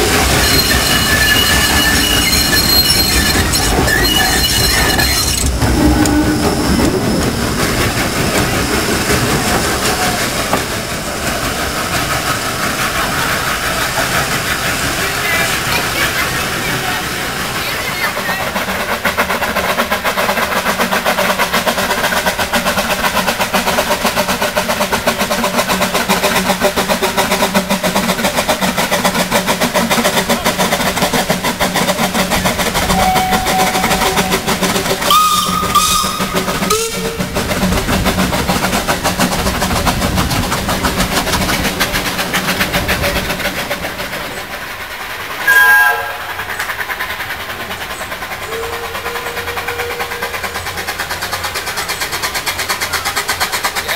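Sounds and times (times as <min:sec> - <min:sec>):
steam locomotive running: 0:00.0 - 0:53.9
steam whistle: 0:32.9 - 0:37.4, 0:45.4 - 0:46.4, 0:48.4 - 0:50.6.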